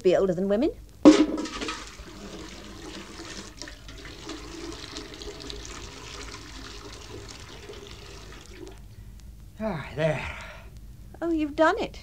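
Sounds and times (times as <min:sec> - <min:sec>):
water gurgling in a sink: 0:01.4 - 0:08.8.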